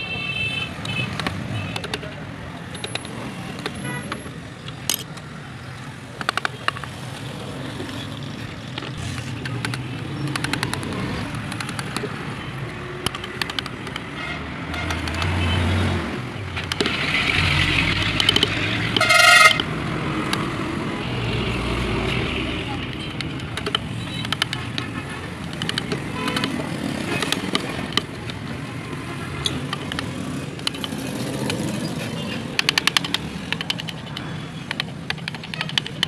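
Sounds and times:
street traffic: 0.0s - 36.0s
vehicle horn toot: 19.0s - 19.6s.

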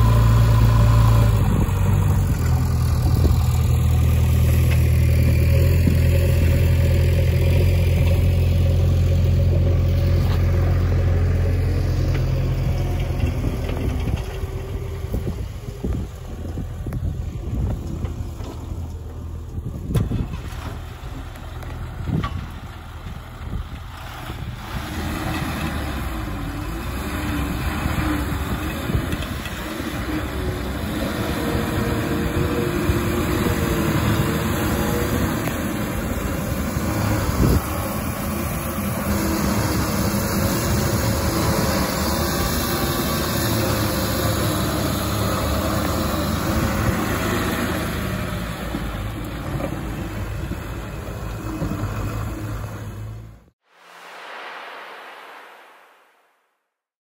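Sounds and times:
lorry diesel engine running: 0.0s - 53.6s.

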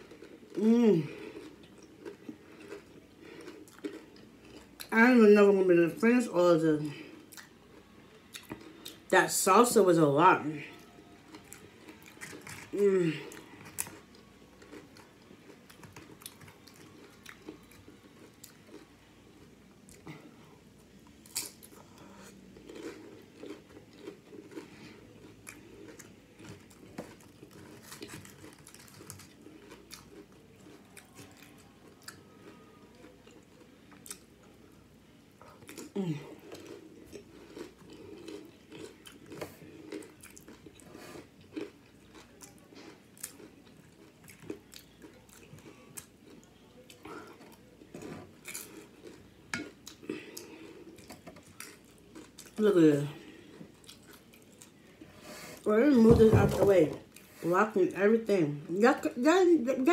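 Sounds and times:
chewing and crunching chips: 0.0s - 56.1s
person humming: 0.6s - 1.2s, 12.8s - 13.3s.

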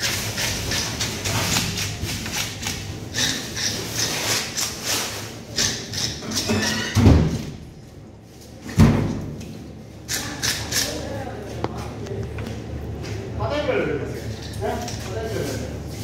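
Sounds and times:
knife scraping fish scales: 0.0s - 6.8s.

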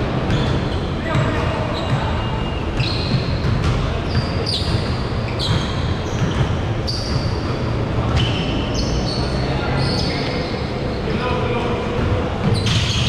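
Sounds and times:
basketball dribbling: 0.0s - 8.6s
sneaker squeaks: 0.0s - 13.0s.

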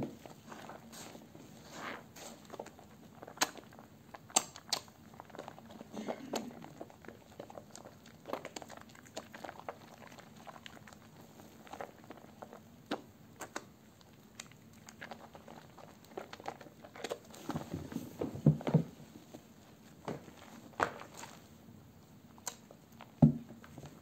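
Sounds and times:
hands squishing soap lather: 0.2s - 18.7s.

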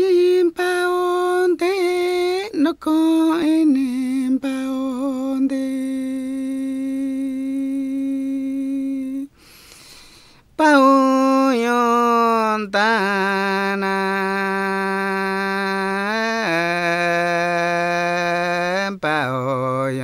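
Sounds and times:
man singing unaccompanied: 0.0s - 9.3s, 10.6s - 20.0s
soft breathy rush: 9.3s - 10.5s.

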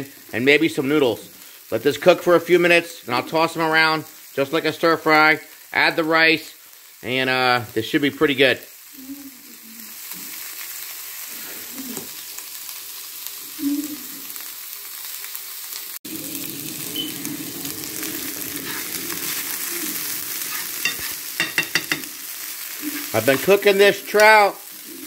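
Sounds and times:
fish sizzling in a pan: 0.0s - 25.0s
spoon scraping a pan: 18.5s - 23.6s.

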